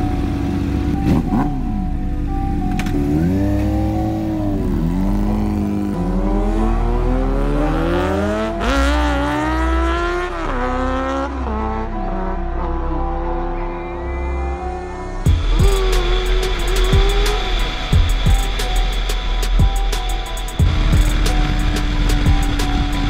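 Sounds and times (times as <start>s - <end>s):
motorcycle engines accelerating: 2.8s - 18.5s.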